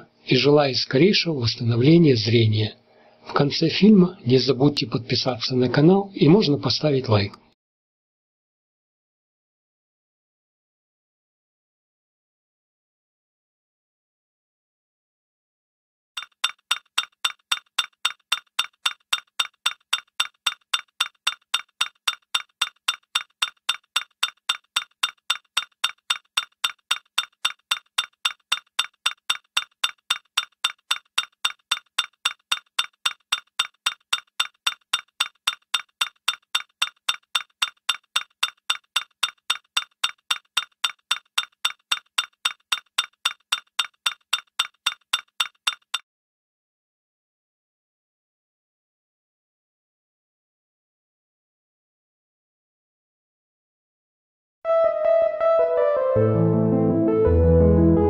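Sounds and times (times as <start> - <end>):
bright glassy ticking: 16.2 - 46.0.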